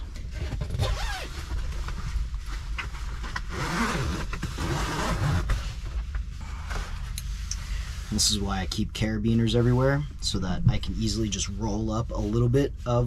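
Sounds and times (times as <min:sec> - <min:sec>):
tent fabric rustling: 0:00.8 - 0:05.9.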